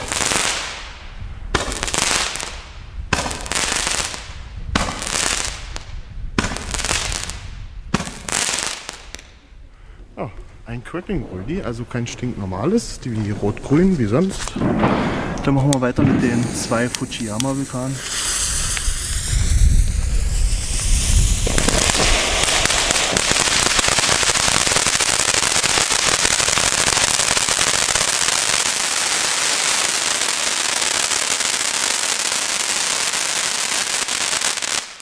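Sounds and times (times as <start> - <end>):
firework crackling: 0.0 - 9.4, 13.8 - 35.0
firework fountain hissing: 16.2 - 35.0.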